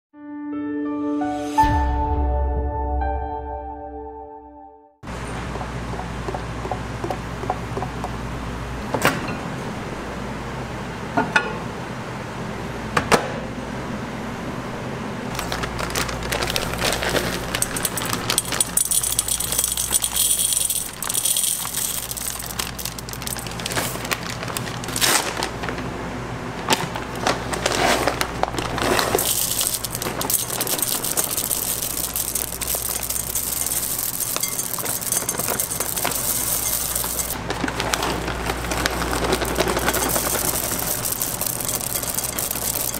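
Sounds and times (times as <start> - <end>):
chocolate pieces clattering into glass bowl: 15.3 - 25.0, 28.6 - 37.4, 38.5 - 42.9.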